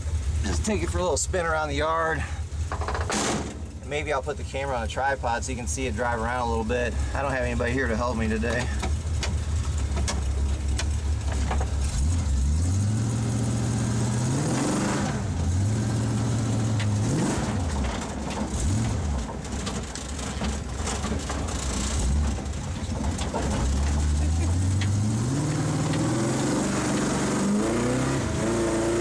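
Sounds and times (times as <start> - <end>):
engine revving through exhaust: 11.7 - 19.2, 21.5 - 22.6, 23.5 - 29.0.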